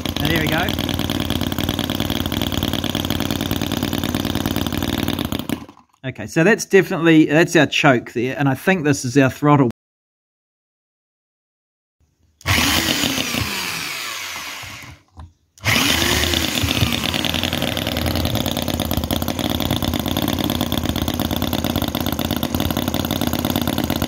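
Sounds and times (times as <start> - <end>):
model petrol engine running: 0.0 - 5.9, 12.4 - 15.0, 15.6 - 24.0.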